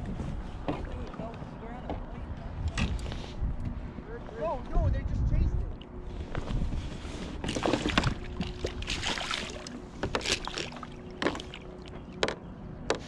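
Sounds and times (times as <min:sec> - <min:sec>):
fish splashing: 0:07.4 - 0:11.9.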